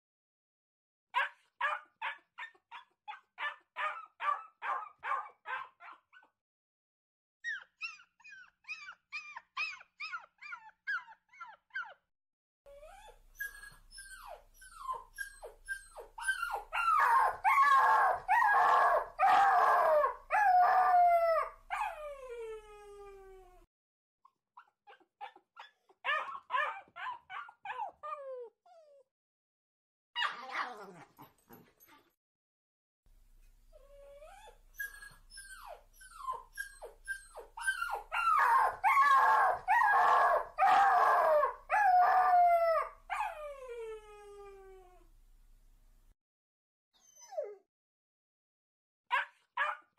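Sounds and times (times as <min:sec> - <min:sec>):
dogs howling: 0:16.3 - 0:23.2, 0:37.3 - 0:43.6.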